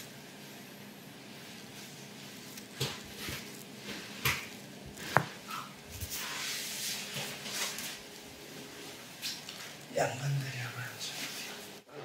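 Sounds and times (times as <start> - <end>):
cloth rustling: 1.3 - 10.0.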